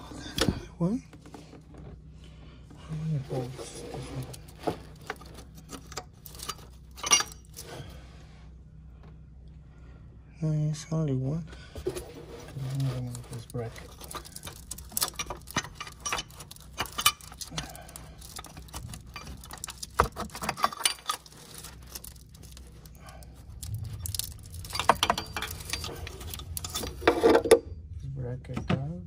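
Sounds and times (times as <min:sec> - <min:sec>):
tools clinking on engine parts: 0:04.1 - 0:07.8, 0:12.8 - 0:27.6.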